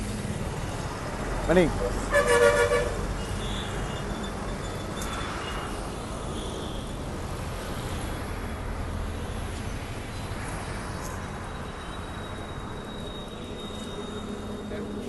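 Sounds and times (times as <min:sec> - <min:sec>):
traffic rumble: 0:00.0 - 0:15.0.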